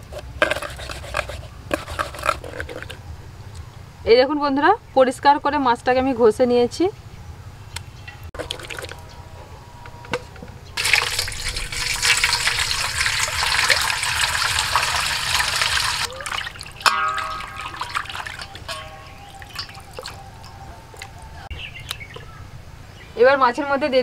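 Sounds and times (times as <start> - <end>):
water splashing into a steel bowl: 10.8 - 21.2.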